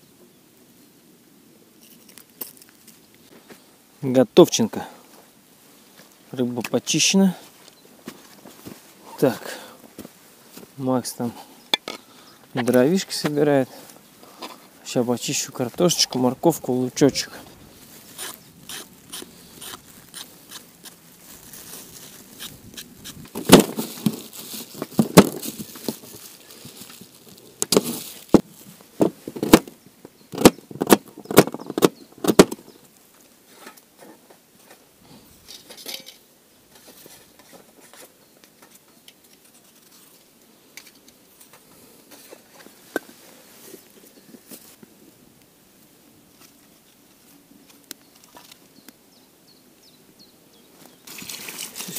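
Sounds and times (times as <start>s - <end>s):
knife scraping vegetable peel: 18.1s - 21.0s.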